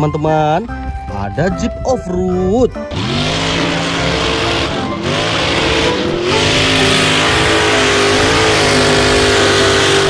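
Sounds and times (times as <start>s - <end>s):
truck engine revving hard: 2.8s - 10.0s.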